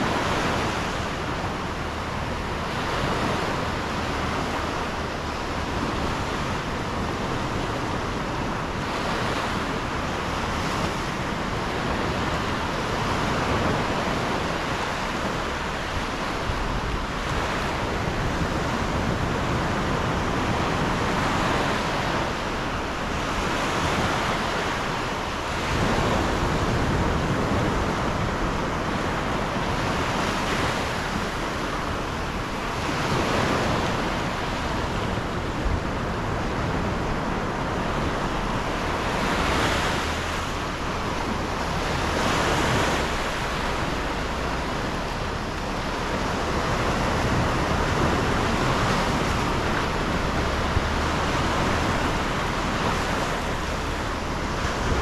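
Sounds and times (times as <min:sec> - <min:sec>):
sea surf breaking: 0:00.0 - 0:55.0
wind rumbling on microphone: 0:00.0 - 0:55.0.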